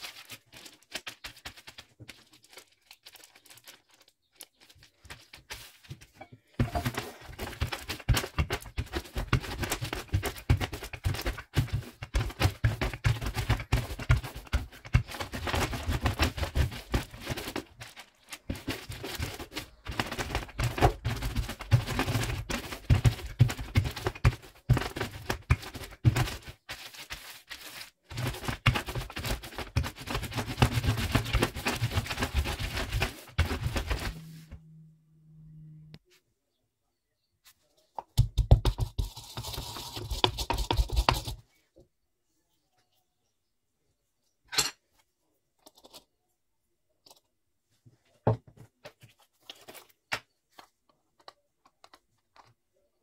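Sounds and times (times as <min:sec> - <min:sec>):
plastic bag crinkling: 0:00.0 - 0:05.9
rolling pin thuds: 0:06.2 - 0:07.3.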